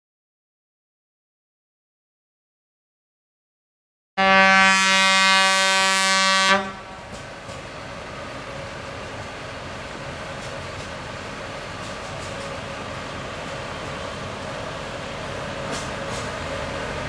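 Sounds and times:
locomotive whistle blast: 4.2s - 7.0s.

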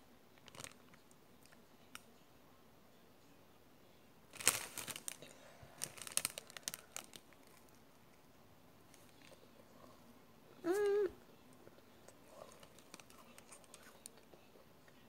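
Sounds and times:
candy wrapper crinkling and tearing: 4.3s - 7.8s, 12.4s - 14.2s.

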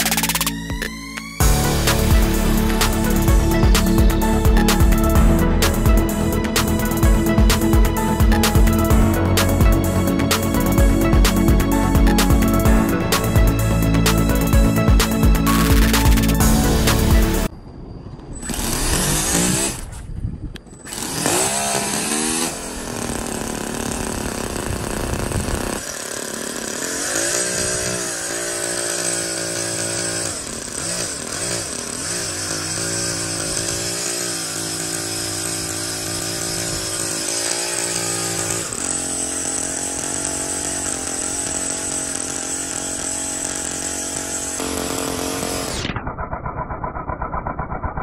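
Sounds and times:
model engine running: 20.8s - 48.0s.

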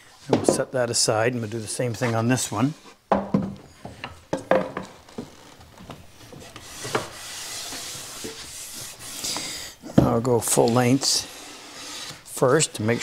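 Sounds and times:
wooden knocks: 3.1s - 7.1s
hands rubbing along board: 6.2s - 13.0s.

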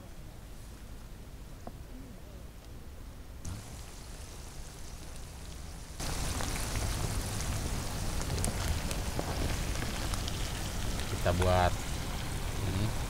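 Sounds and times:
shrimp sizzling in hot oil: 3.5s - 13.0s.

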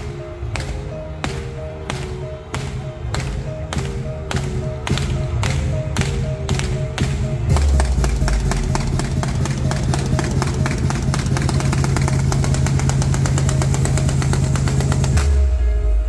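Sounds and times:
steady low drone: 0.0s - 16.0s.

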